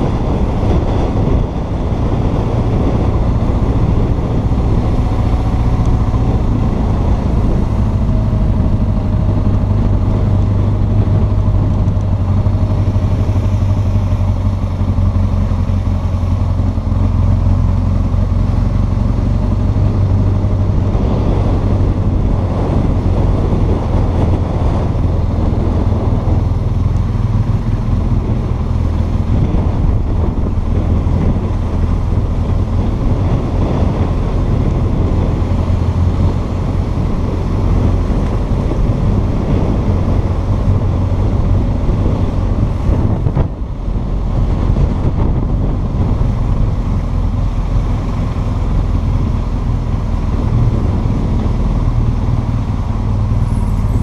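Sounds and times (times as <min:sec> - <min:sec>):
motorcycle engine at low revs: 0:00.0 - 0:54.0
wind noise on microphone: 0:00.0 - 0:54.0.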